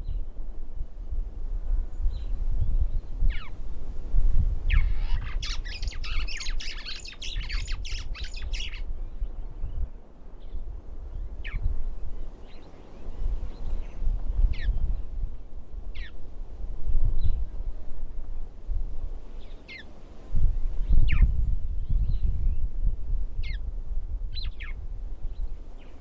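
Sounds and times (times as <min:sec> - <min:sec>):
birds calling: 0:04.7 - 0:08.9, 0:19.4 - 0:19.9.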